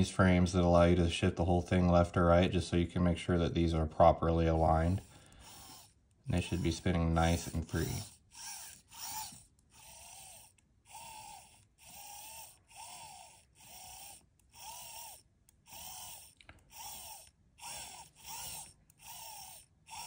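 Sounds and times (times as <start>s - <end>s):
plastic gears whirring: 4.0s - 20.0s.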